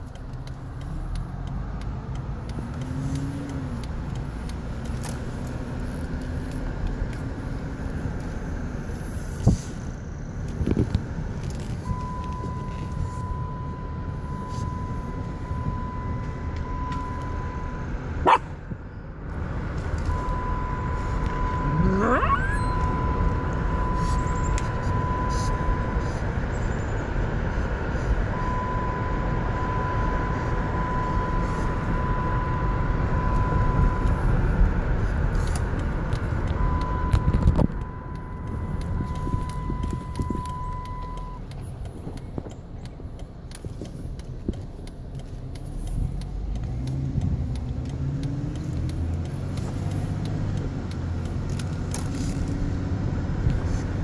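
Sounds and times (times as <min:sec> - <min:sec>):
low car hum: 0:00.0 - 0:54.0
wind rush through car window: 0:09.0 - 0:17.4, 0:19.7 - 0:41.0
high whistle: 0:20.1 - 0:25.8.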